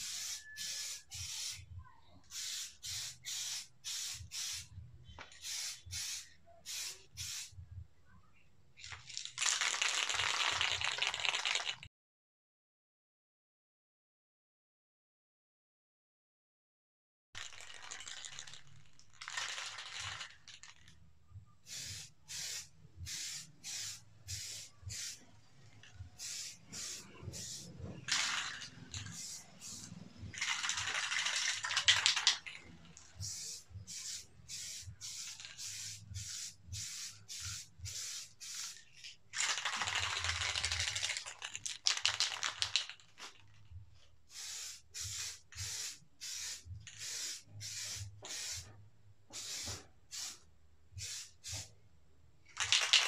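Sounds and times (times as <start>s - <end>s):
paint spraying hiss: 0.0s - 1.6s, 2.3s - 4.7s, 5.3s - 7.5s, 21.7s - 25.2s, 26.1s - 32.3s, 33.1s - 38.9s, 44.3s - 48.7s, 49.3s - 50.4s, 51.0s - 51.7s.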